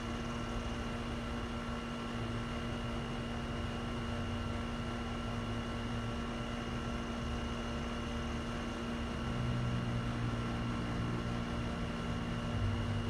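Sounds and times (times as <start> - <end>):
mechanical hum with fixed tones: 0.0 - 13.0.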